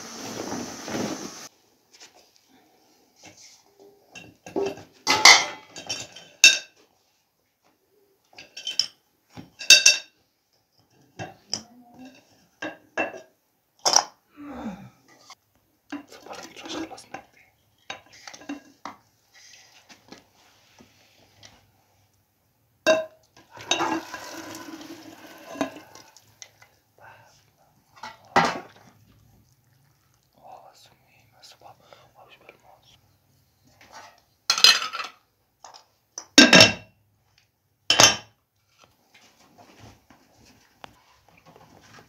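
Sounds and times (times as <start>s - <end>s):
metal kitchenware clanking: 4.2s - 6.7s, 22.9s - 25.9s
spoon scraping a metal pot: 23.6s - 25.9s.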